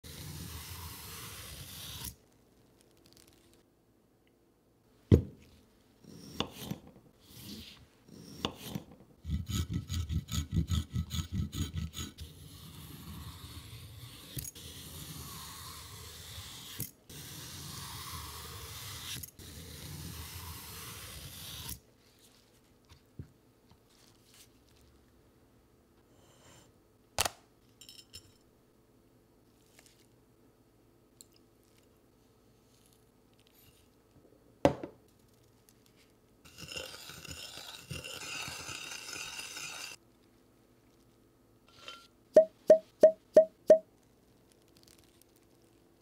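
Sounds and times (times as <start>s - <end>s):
peeler scraping cucumber: 6.1s - 21.8s, 36.5s - 40.0s.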